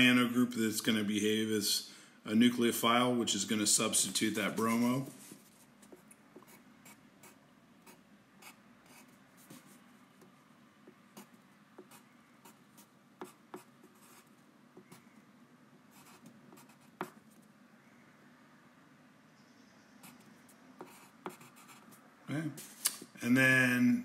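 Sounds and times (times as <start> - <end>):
pen scratching on paper: 11.2 - 15.1, 15.9 - 17.2, 20.0 - 22.0.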